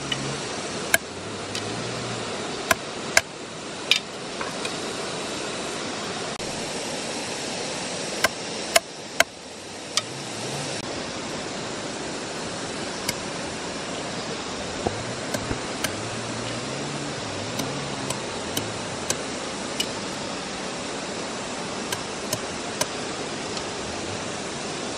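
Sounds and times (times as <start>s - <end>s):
flowing stream: 0.0s - 24.9s
knife striking wooden log: 15.3s - 16.0s.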